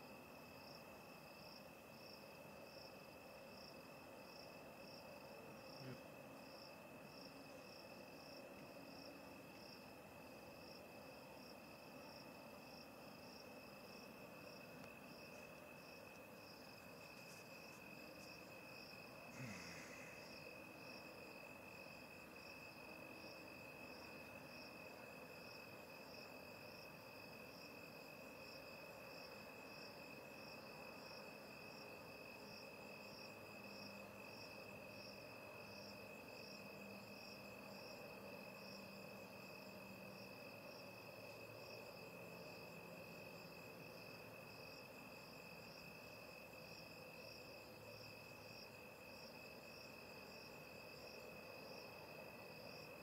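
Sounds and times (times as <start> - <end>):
pulsing insect chirp: 0.0 - 53.0
insect high trill: 16.5 - 20.4.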